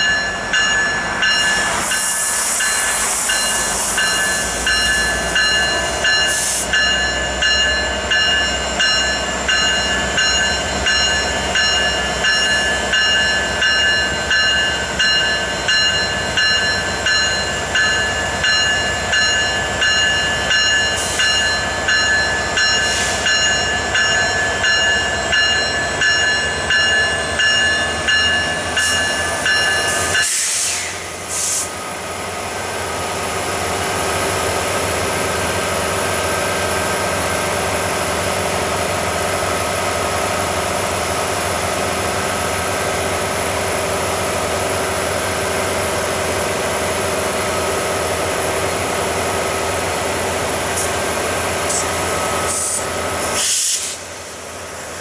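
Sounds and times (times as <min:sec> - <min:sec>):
locomotive bell ringing: 0:00.0 - 0:30.6
hiss: 0:01.6 - 0:05.3, 0:06.3 - 0:06.7, 0:29.9 - 0:31.8, 0:51.7 - 0:54.2.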